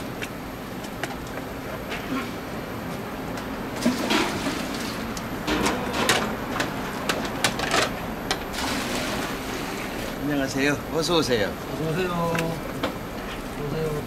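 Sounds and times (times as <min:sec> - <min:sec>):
broth boiling: 0:08.0 - 0:14.0
broth splashing: 0:08.5 - 0:10.2.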